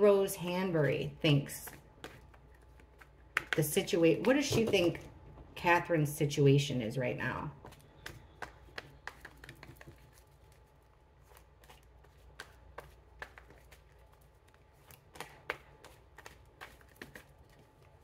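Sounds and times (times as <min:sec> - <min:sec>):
cards being shuffled: 0:01.7 - 0:03.6, 0:07.6 - 0:18.0.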